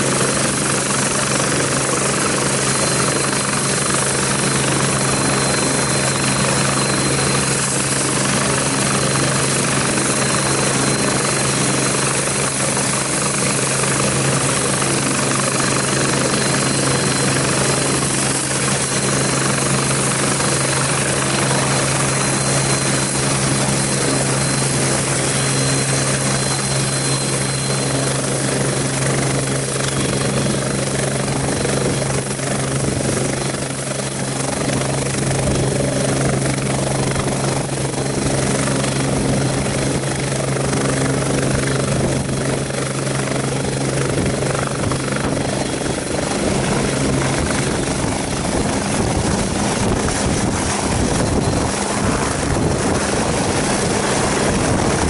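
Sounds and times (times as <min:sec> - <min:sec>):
helicopter turbine and rotor din: 0:00.0 - 0:55.0
thin high whine: 0:16.0 - 0:28.6.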